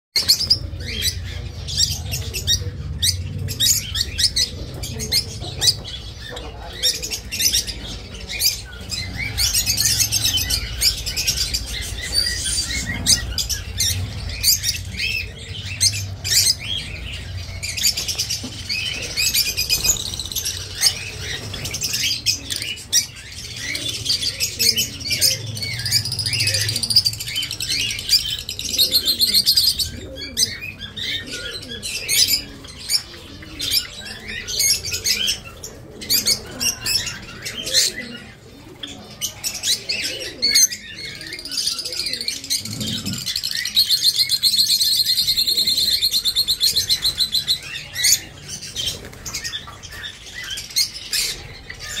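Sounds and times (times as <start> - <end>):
lovebirds chirping and squeaking: 0.2 - 52.0.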